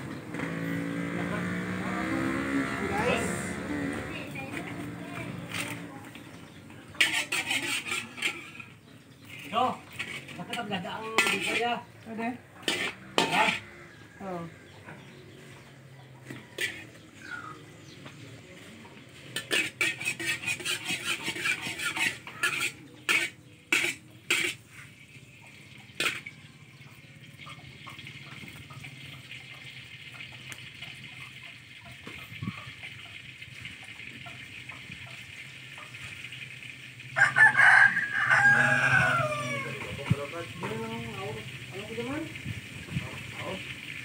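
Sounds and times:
rooster crowing: 37.2s - 40.0s.

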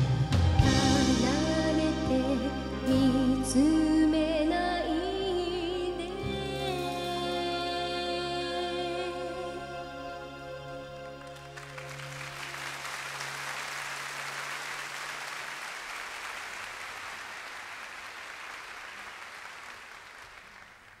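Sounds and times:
audience applauding: 11.0s - 21.0s.

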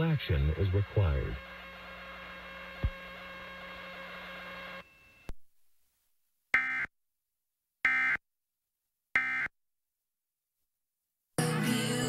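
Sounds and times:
steady low hum: 0.0s - 5.3s.

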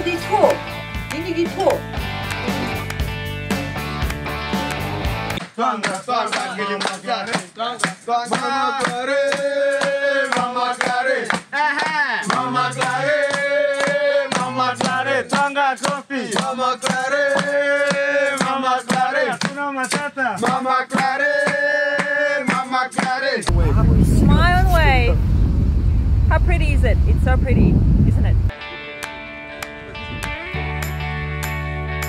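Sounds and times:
sharp rhythmic clapping: 0.3s - 23.5s
men singing in unison: 5.4s - 23.5s.

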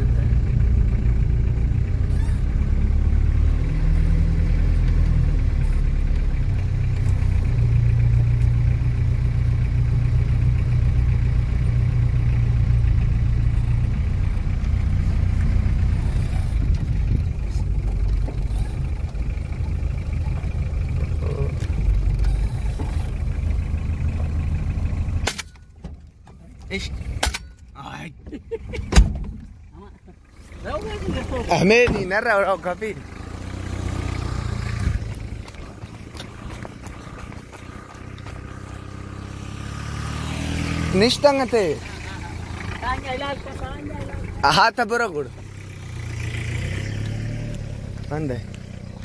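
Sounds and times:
vehicle engine: 0.0s - 49.0s
tyre rumble on rough ground: 34.4s - 39.2s.

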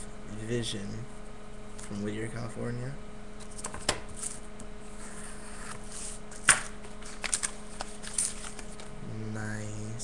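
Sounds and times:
electrical hum: 0.0s - 10.0s
packaging rustling and crackling: 7.0s - 8.9s.

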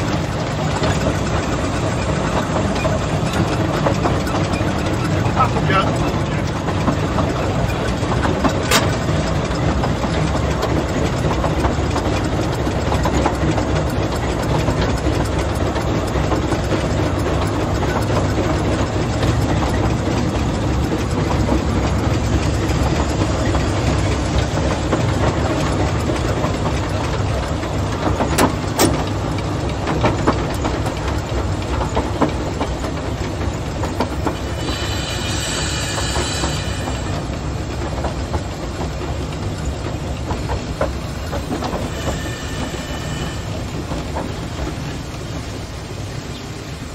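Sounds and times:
train rumbling on track: 0.0s - 46.9s
wheels clicking over rail joints: 0.0s - 46.9s
high-pitched squeal: 34.4s - 37.2s.

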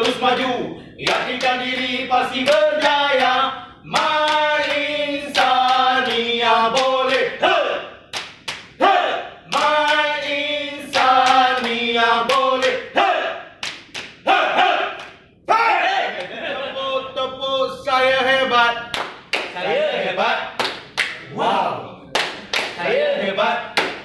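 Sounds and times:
sharp hand claps: 0.0s - 7.2s, 8.1s - 8.8s, 9.5s - 10.3s, 10.9s - 12.9s, 13.6s - 14.2s, 14.9s - 15.3s, 18.9s - 19.6s, 20.6s - 21.3s, 22.1s - 22.8s, 23.8s - 24.0s
men singing together: 0.0s - 7.9s, 8.8s - 13.3s, 16.3s - 18.9s, 19.5s - 20.6s, 22.8s - 23.8s.

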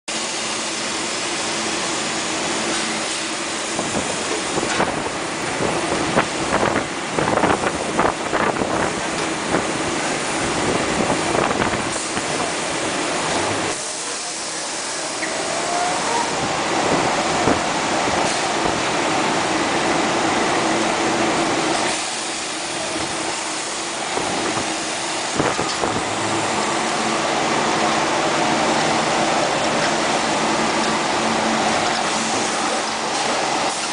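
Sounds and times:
grinding machine motor hum: 22.5s - 33.8s.

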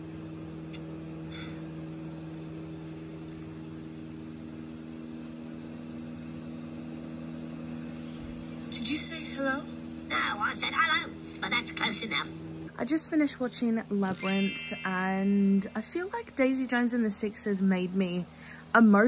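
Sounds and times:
low steady hum: 12.6s - 19.0s.

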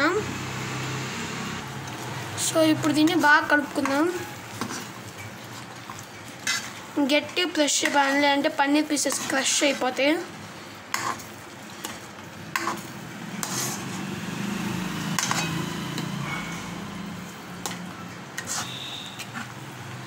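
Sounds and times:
gravy sizzling: 0.0s - 20.0s
ladle scraping a pan: 3.3s - 7.0s, 7.7s - 14.0s, 15.1s - 20.0s.

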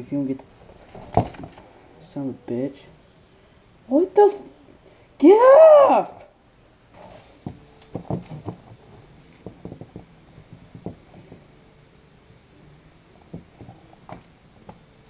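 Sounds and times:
cardboard card rustling: 7.0s - 9.8s.

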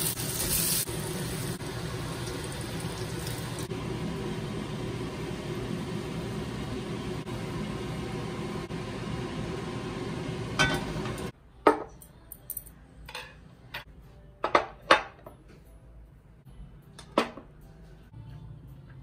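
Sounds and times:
tableware knocking and clinking: 10.6s - 10.9s, 11.6s - 12.0s, 14.4s - 15.4s.

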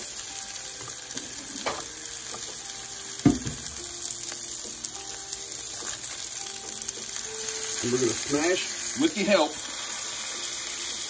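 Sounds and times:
meat sizzling on griddle: 0.0s - 11.0s
sharp knock: 3.2s - 3.7s.

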